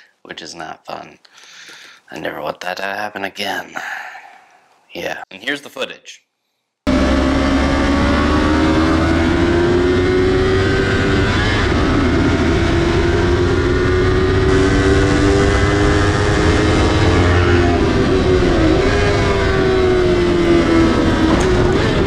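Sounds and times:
motorcycle engine at high revs: 6.9s - 22.0s
wind rush on microphone: 10.2s - 22.0s.

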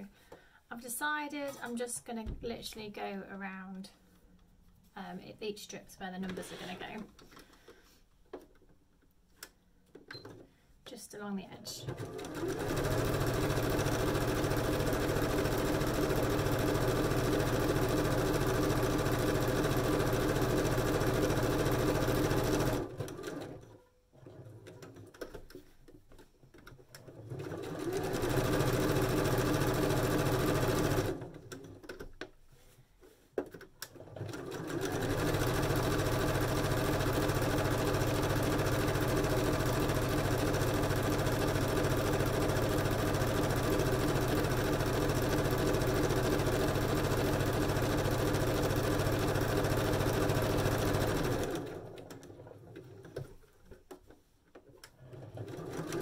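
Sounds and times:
sewing machine running: 11.8s - 25.2s, 27.0s - 31.8s, 33.9s - 53.1s, 55.0s - 56.0s.

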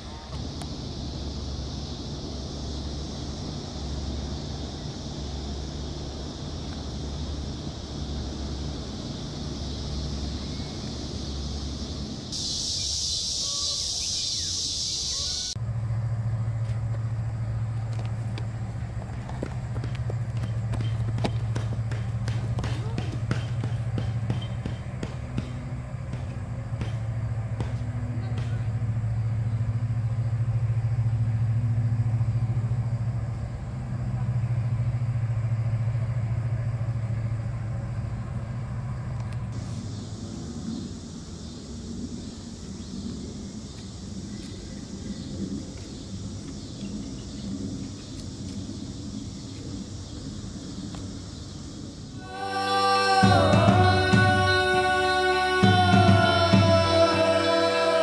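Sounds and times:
steady high hiss: 0.0s - 16.1s, 38.3s - 58.0s
ship passing with low drone: 0.0s - 58.0s
faint chirps: 9.7s - 15.6s.

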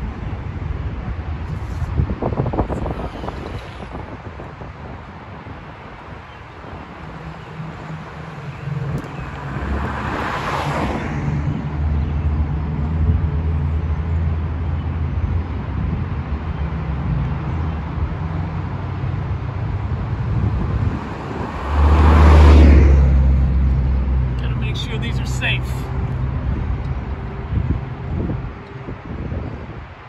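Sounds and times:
traffic rumble: 0.0s - 30.0s
vehicles passing close by: 0.0s - 30.0s.

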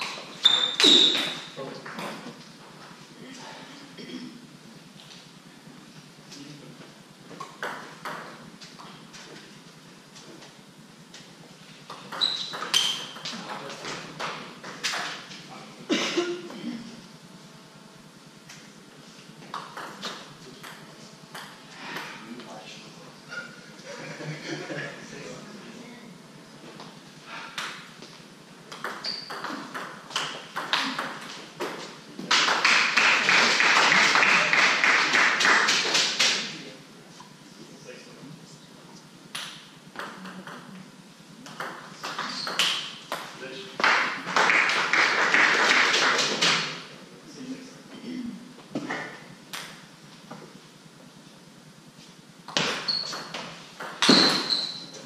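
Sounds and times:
crowd applause: 32.4s - 36.2s, 44.0s - 46.4s.

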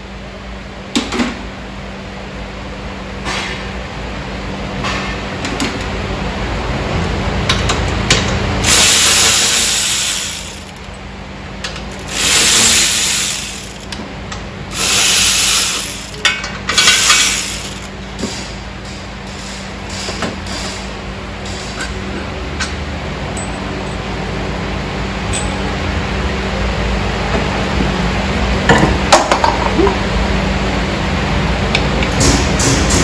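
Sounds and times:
ratchet wrench turning bolts: 8.6s - 11.0s, 11.8s - 14.0s, 14.7s - 17.9s.

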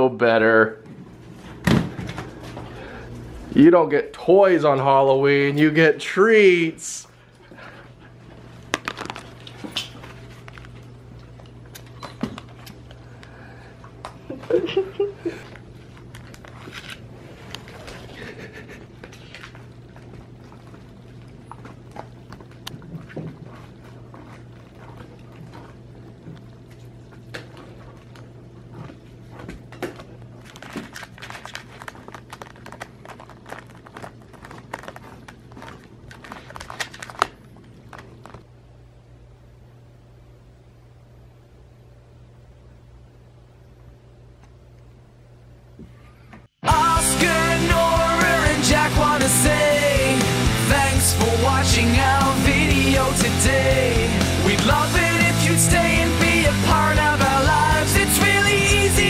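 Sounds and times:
steady low hum: 0.0s - 59.0s
dogs crunching chew treats: 7.4s - 14.4s, 15.4s - 38.5s.

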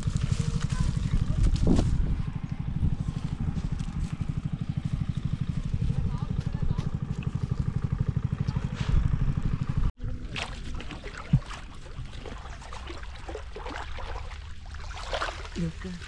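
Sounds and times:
small engine running: 0.0s - 9.9s
water splashing and trickling: 10.0s - 16.0s.

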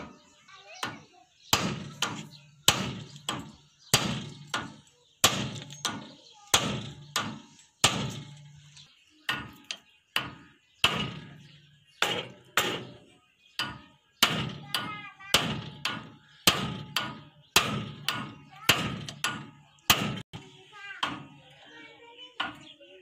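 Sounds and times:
hammer striking metal: 1.5s - 8.7s, 9.3s - 20.3s.

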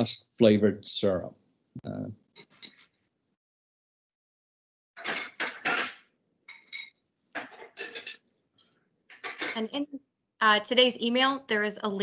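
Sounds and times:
dishes and cutlery clinking: 5.0s - 8.2s, 9.1s - 9.6s.

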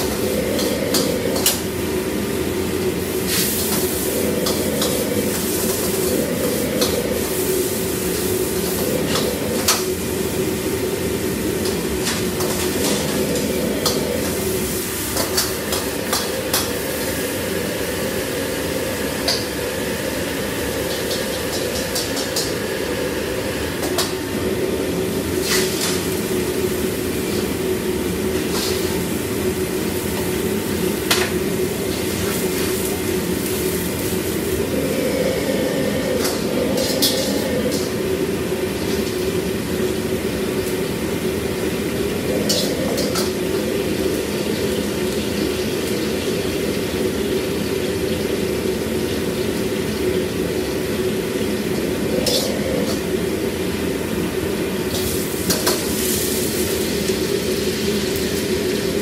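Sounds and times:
gas burner roaring: 0.0s - 59.0s
metal utensils clanking on pots: 36.1s - 38.0s, 42.4s - 43.5s, 52.2s - 53.1s.

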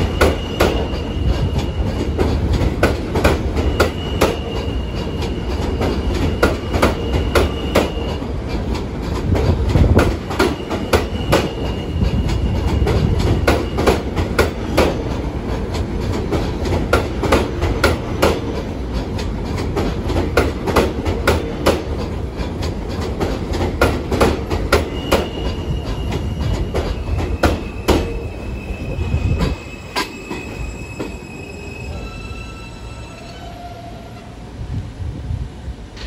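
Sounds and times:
train wheels squealing: 0.0s - 2.5s, 3.2s - 8.4s, 10.2s - 14.9s, 24.6s - 34.4s
train wheels clicking over rail joints: 0.0s - 31.2s
train low rumble: 0.0s - 36.0s.

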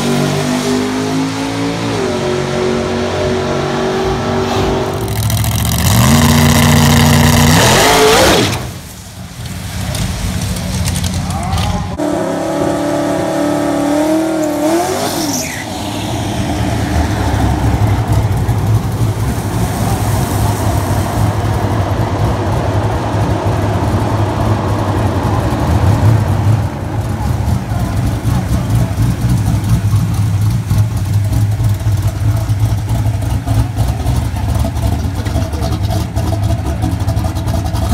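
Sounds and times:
engine held at high revs: 0.0s - 8.8s, 12.0s - 21.4s
engine rumbling at low revs: 0.0s - 37.9s
pickup engine accelerating: 0.0s - 37.9s.

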